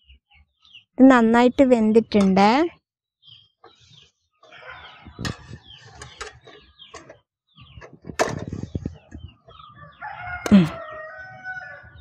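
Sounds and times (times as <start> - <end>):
rooster crowing: 9.7 - 12.0.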